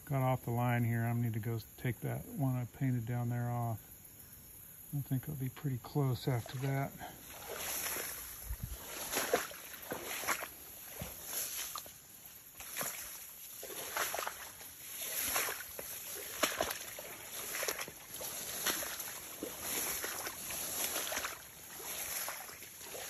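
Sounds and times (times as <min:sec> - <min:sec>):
footsteps sloshing through water: 0:06.2 - 0:23.0.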